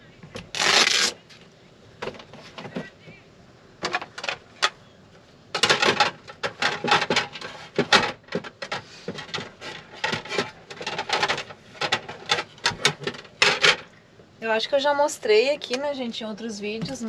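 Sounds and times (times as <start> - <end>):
dishes clinking and clattering: 5.6 - 13.9.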